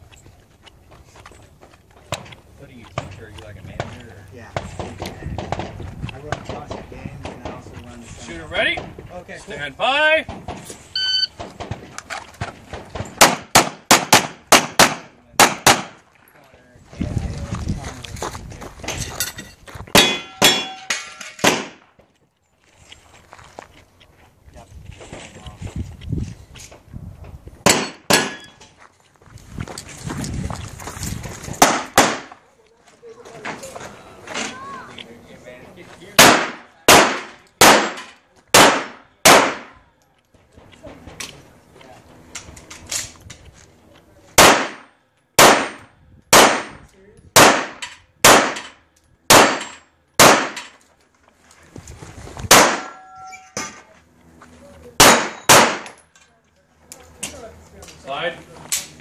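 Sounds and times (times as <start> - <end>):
pistol shots: 13.2 - 16.0, 20.0 - 21.8, 27.6 - 28.5, 31.6 - 32.3, 36.2 - 39.8, 44.4 - 46.8, 47.4 - 50.7, 52.5 - 53.0, 55.0 - 56.0.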